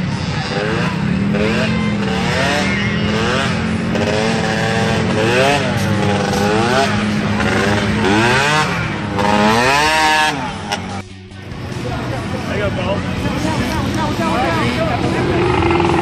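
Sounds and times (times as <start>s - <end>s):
small atv engine revving: 0.0s - 10.9s, 14.7s - 16.0s.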